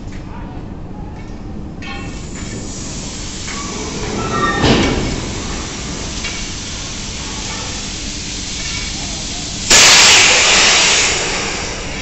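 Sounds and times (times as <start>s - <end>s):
coal rushing from wagons: 3.3s - 7.8s.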